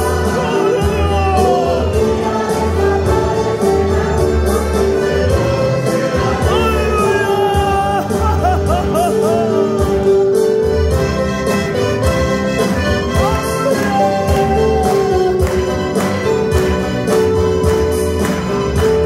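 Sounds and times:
choir singing: 0.0 - 10.3
bass line: 0.0 - 19.0
drum beat: 5.3 - 19.0.

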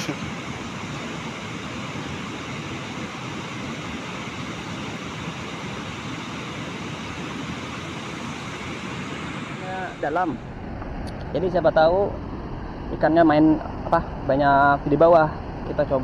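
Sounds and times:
river water rushing over weir: 0.0 - 10.6.

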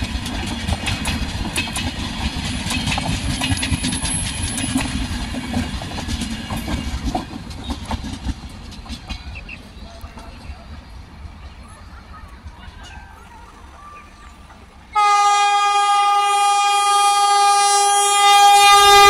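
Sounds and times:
train wheels clattering over rail joints: 0.0 - 11.6.

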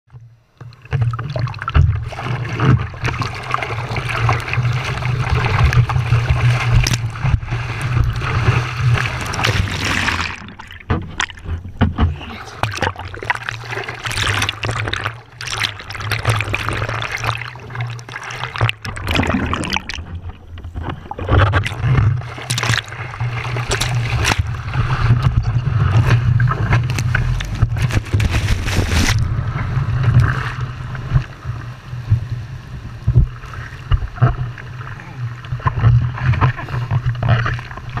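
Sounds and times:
seawater splashing: 0.8 - 38.0
wave washing over board: 1.2 - 34.8
low rumble: 23.4 - 34.6.

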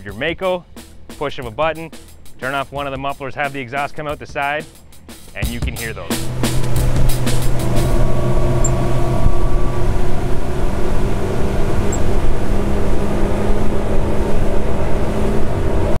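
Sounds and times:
outboard engines running loudly: 6.1 - 16.0.

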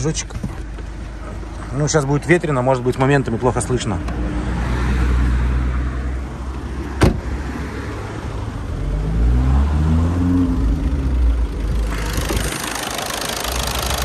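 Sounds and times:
car door thud: 7.0 - 7.3.

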